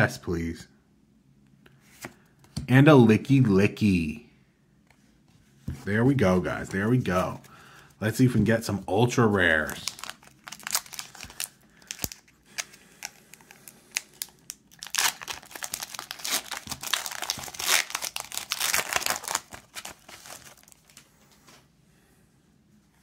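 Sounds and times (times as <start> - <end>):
foil wrapper tearing and crinkling: 9.7 - 21.0.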